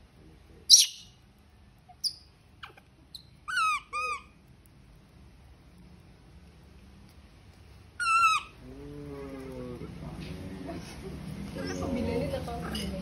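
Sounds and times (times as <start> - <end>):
baby macaque calling: 0.7 - 1.1, 1.9 - 4.4, 8.0 - 8.6.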